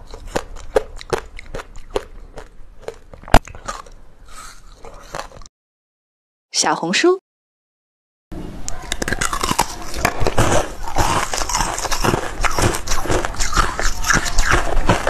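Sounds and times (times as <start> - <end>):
biting and crunching ice: 0.0 - 4.0, 8.9 - 15.0.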